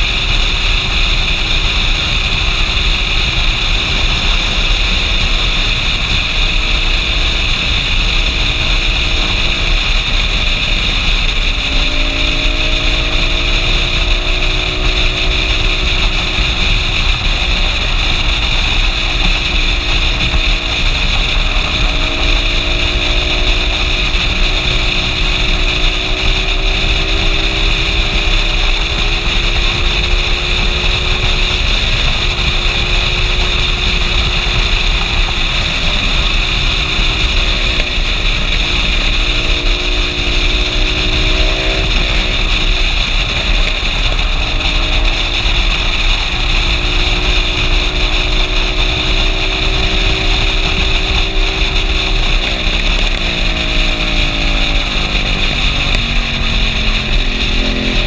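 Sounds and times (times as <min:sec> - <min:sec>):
motorcycle engine cruising: 0:00.0 - 0:58.0
wind and road noise: 0:00.0 - 0:58.0.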